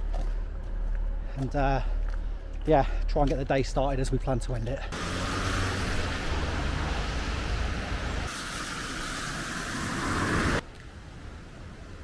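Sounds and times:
low outdoor hum: 0.0 - 5.0.

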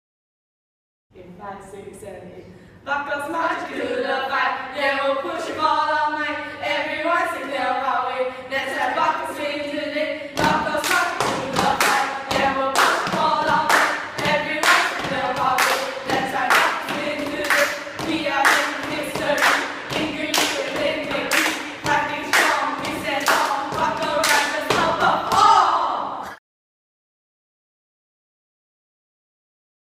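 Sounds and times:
hand claps: 10.4 - 25.4
girls chanting a cheer: 10.4 - 26.3.

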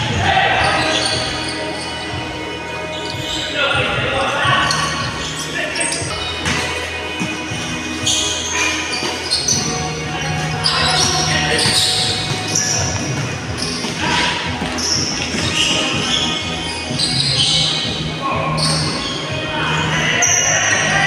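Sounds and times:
sneakers squeaking: 0.0 - 21.0
basketball bouncing on court: 11.0 - 16.3.

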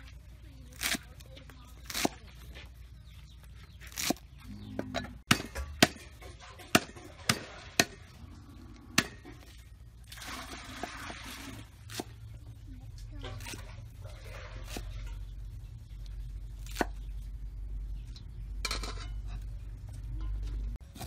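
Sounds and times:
stems rustling: 0.0 - 4.8.

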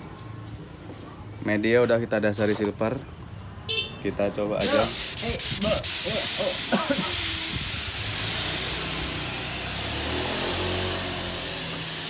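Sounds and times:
spray gun hissing: 4.6 - 12.0.

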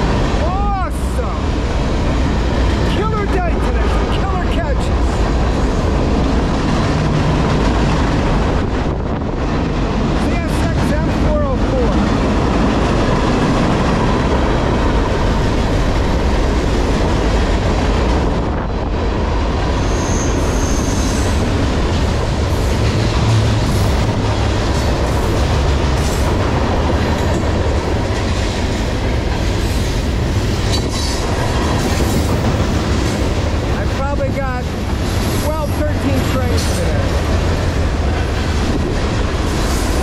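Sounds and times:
train wheels rumbling on rails: 0.0 - 40.0
high wheel squeal: 19.8 - 21.5
sharp rail clacks: 34.7 - 40.0.

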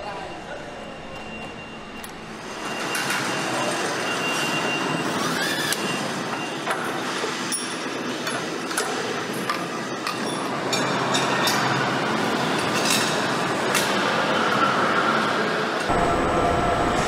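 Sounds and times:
factory mechanical noise: 0.0 - 17.0
short rising whine: 15.9 - 17.0.

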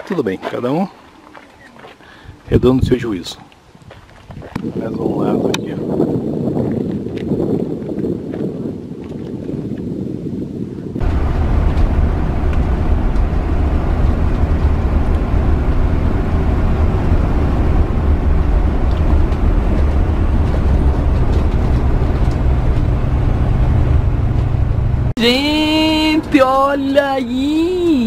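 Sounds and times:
engine and road noise in cab: 11.0 - 28.0.

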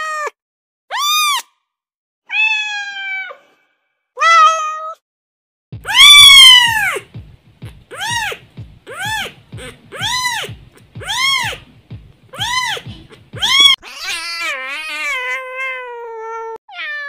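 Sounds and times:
cat meowing: 2.3 - 3.4, 4.2 - 5.0, 5.8 - 7.0, 7.9 - 11.6, 12.3 - 17.0.

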